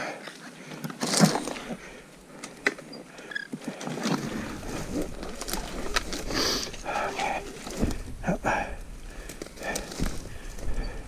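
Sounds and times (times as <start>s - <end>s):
underbrush crackling and twigs snapping: 0.2s - 11.0s.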